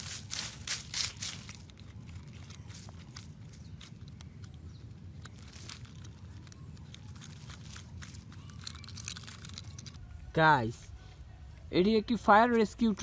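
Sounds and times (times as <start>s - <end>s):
hand digging through dry soil: 0.0s - 9.9s
low steady rumble: 0.0s - 13.0s.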